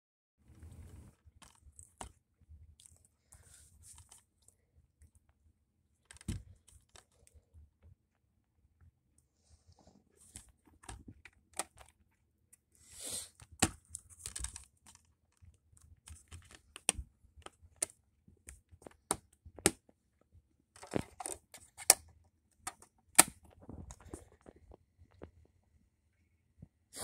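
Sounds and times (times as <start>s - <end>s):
plastic case clicks and snaps: 20.8s - 23.6s.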